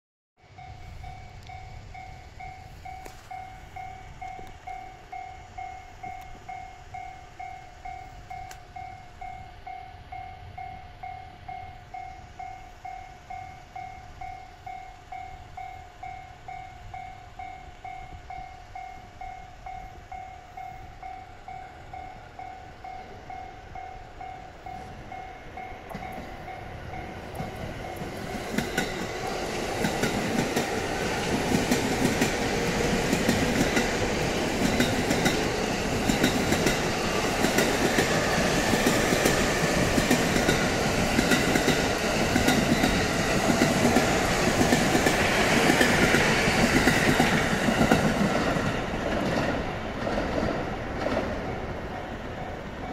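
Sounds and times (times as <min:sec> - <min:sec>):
electric train passing: 0:00.4 - 0:52.9
level crossing alarm bell ringing: 0:00.5 - 0:46.8
train wheels clattering over rail joints: 0:25.8 - 0:51.8.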